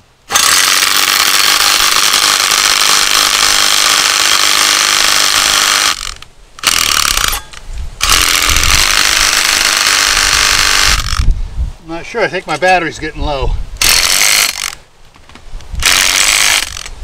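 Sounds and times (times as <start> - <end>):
power driver driving screw into concrete: 15.8 - 16.9.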